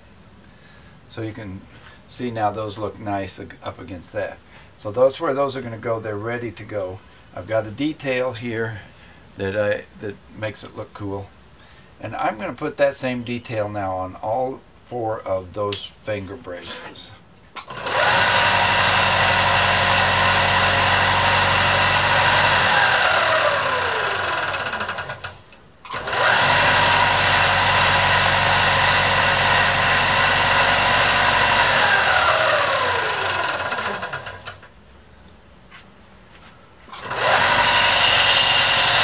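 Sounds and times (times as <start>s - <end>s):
belt sander running: 17.6s - 34.6s, 36.9s - 39.0s
sander spinning down whine: 17.8s - 25.0s, 26.0s - 34.5s, 37.0s - 39.0s.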